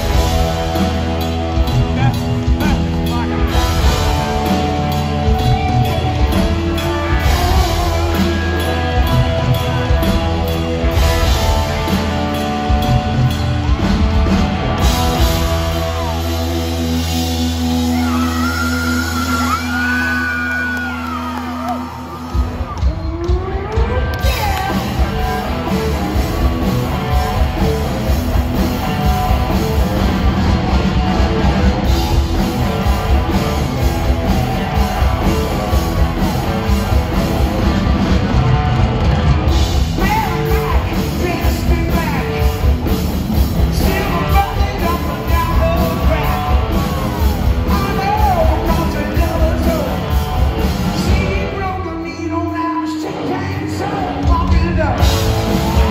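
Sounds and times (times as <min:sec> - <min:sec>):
hard rock band playing live: 0:00.0 - 0:55.9
man singing lead vocals: 0:40.0 - 0:42.8, 0:43.6 - 0:50.1, 0:51.0 - 0:55.2.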